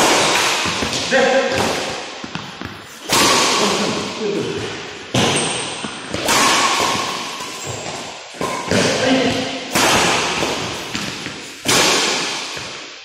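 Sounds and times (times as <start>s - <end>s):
badminton racket hitting shuttlecock: 0.0s - 13.0s.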